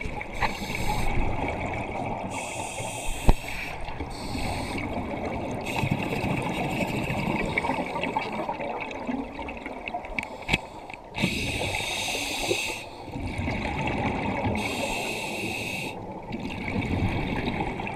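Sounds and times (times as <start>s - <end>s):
regulator hissing inhalations: 0.4s - 1.2s, 2.3s - 4.9s, 10.3s - 13.0s, 14.6s - 16.0s
gurgle of exhaled bubbles: 3.2s - 10.2s, 13.1s - 14.7s, 16.1s - 17.9s.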